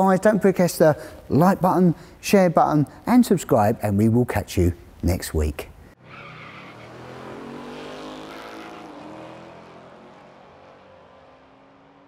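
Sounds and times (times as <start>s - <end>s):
car engine revving: 6.1s - 12.0s.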